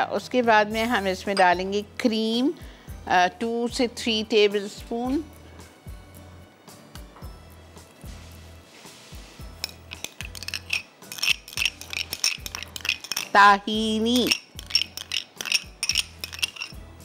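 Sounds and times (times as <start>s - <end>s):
metal spoon clinking on ceramic plate: 9.6s - 16.8s.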